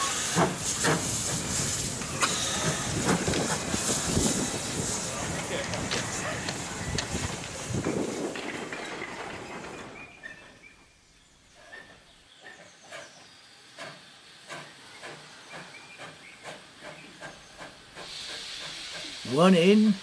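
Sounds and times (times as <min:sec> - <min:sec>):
steam train hiss: 0:00.0 - 0:08.8, 0:09.4 - 0:20.0
wagon wheels clicking over rail joints: 0:05.5 - 0:10.5.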